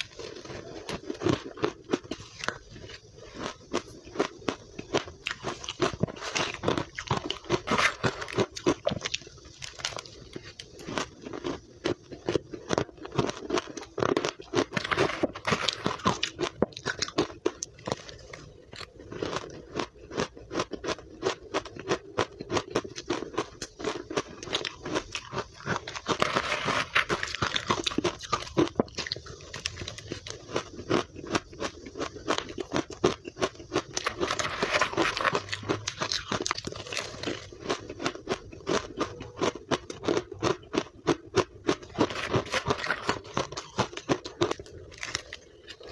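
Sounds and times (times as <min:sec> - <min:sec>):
chewing crunchy ice: 0:00.0 - 0:45.9
spoon scraping ice in plastic tub: 0:06.0 - 0:09.0, 0:14.6 - 0:16.3, 0:24.6 - 0:29.0, 0:33.9 - 0:37.4, 0:41.9 - 0:44.1.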